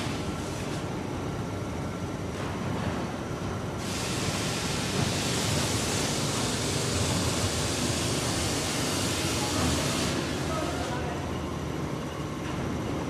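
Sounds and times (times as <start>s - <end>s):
loud steady hiss: 3.8s - 11.1s.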